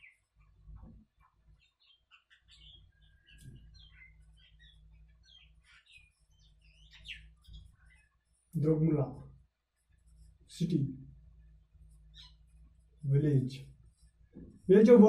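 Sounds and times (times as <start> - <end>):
marker squeaking on whiteboard: 3.3 - 8.4, 9.8 - 10.6.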